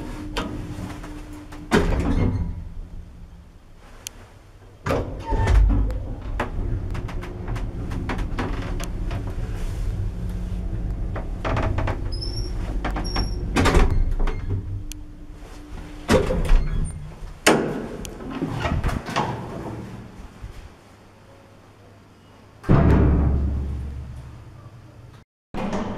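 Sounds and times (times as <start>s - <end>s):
lift humming: 0.0s - 20.5s
loud lift clunks: 1.5s - 3.1s, 22.6s - 24.4s.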